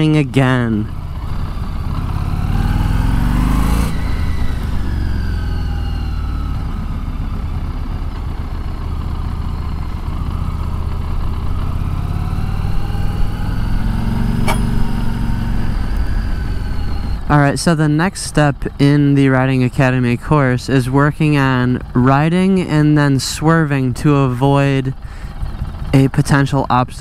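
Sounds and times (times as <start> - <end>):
motorcycle engine revving: 0.9 - 17.8
sharp click: 14.4 - 15.0.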